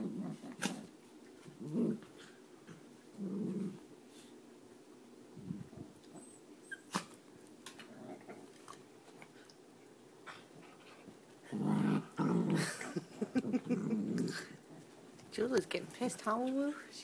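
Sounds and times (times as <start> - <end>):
dog growling: 0.0 - 0.9, 1.6 - 2.4, 3.1 - 3.8, 7.8 - 8.6, 11.4 - 15.0.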